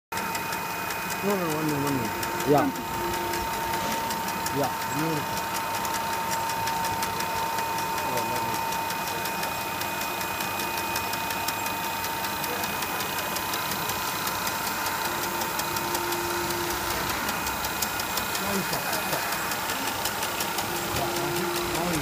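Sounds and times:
fast even ticking: 0.1s - 22.0s
machine motors and fans whirring: 0.2s - 22.0s
constant high hum: 0.4s - 22.0s.

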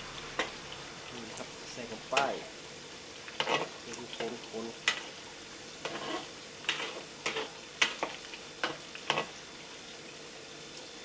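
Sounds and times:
meat sizzling in sauce: 0.0s - 11.0s
metal spatula scraping a wok: 3.4s - 3.8s, 5.8s - 9.3s.

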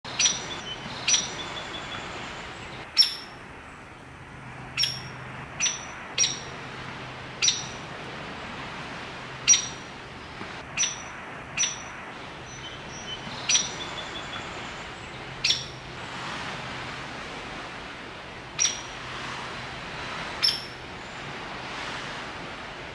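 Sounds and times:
woodpecker calls: 0.1s - 2.0s, 2.9s - 3.4s, 4.7s - 6.5s, 7.4s - 7.8s, 9.5s - 9.8s, 10.7s - 11.9s, 12.5s - 14.5s, 15.4s - 15.8s, 18.6s - 19.0s, 20.4s - 20.8s.

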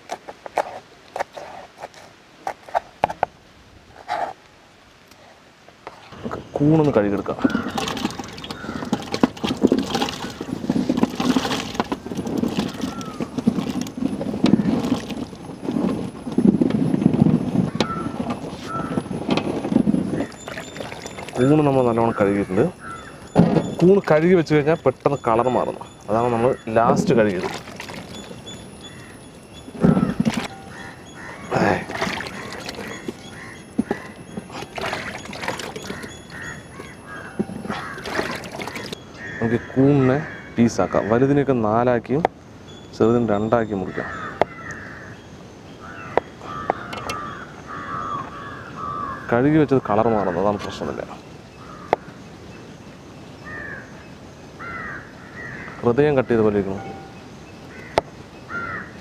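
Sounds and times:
bird calling: 6.2s - 16.0s, 17.6s - 41.6s, 42.6s - 59.0s
mushrooms dropping into water: 27.0s - 28.4s.

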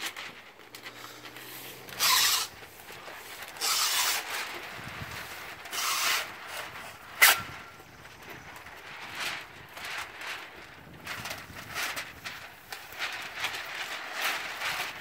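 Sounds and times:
tape pulled off masker: 0.0s - 10.2s.

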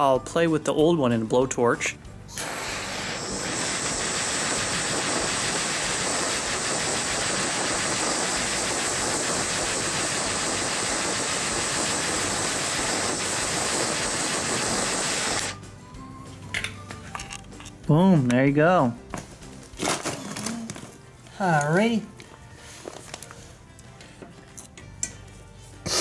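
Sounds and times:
blowtorch flame hissing: 2.3s - 15.6s.

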